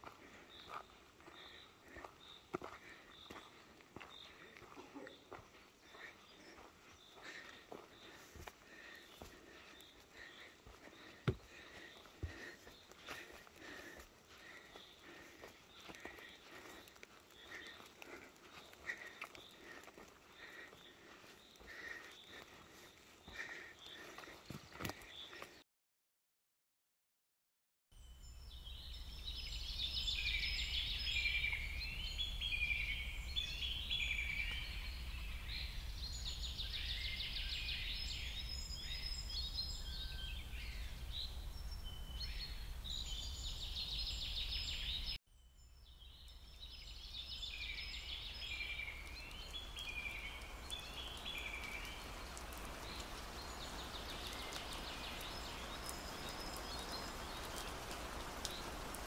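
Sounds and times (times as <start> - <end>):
songbirds singing: 0.0 - 25.6, 28.0 - 59.0
rain hiss with drop ticks: 48.0 - 59.0.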